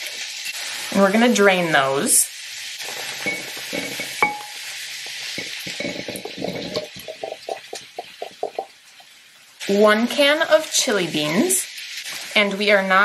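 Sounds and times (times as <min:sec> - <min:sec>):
onions sizzling in skillet: 0:00.0 - 0:13.0
spatula scraping and tapping: 0:03.2 - 0:09.1.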